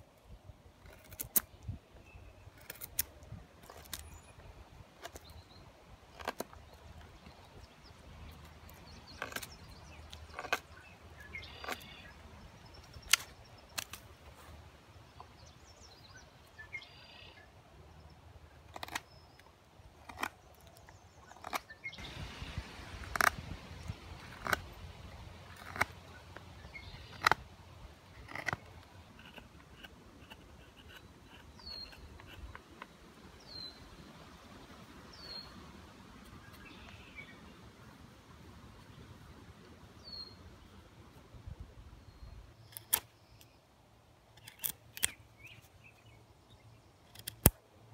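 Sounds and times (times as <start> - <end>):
knife carving dry wood: 0.7 - 4.3, 6.1 - 7.2, 8.0 - 12.2, 18.6 - 33.0, 44.4 - 45.2, 47.1 - 47.6.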